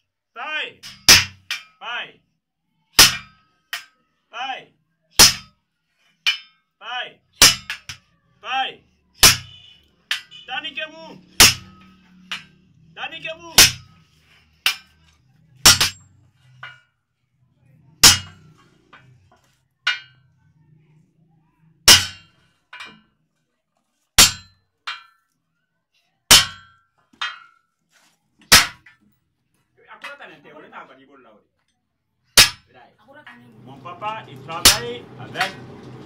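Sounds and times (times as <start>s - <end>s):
hammer clanging on steel: 3.0s - 4.0s, 6.2s - 6.6s, 9.2s - 10.5s, 11.3s - 12.6s, 13.6s - 14.0s, 14.6s - 16.9s, 18.0s - 19.2s, 19.9s - 20.2s, 21.9s - 23.0s, 26.3s - 27.6s, 33.7s - 36.0s.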